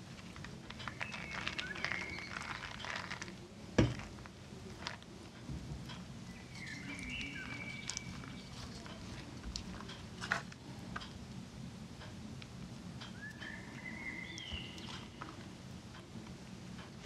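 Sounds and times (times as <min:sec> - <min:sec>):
wet rustles of cabbage leaves: 0:00.0 - 0:05.1.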